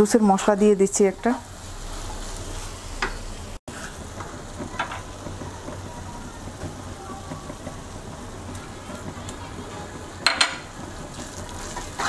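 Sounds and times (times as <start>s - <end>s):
light sizzling: 0.0s - 12.0s
spatula scraping a wok: 1.6s - 4.8s, 10.6s - 12.0s.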